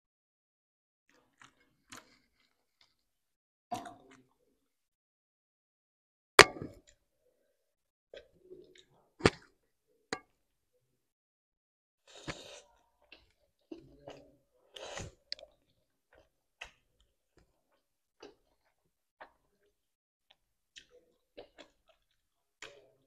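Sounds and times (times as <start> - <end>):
chewing: 1.1 - 3.1, 12.1 - 23.0
slurping noodles: 12.1 - 13.4, 14.1 - 15.5.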